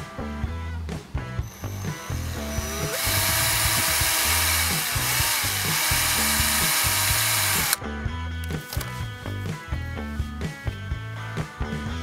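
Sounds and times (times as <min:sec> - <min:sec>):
background music with steady beat: 0:00.0 - 0:12.0
cordless drill boring into cucumber: 0:01.5 - 0:07.8.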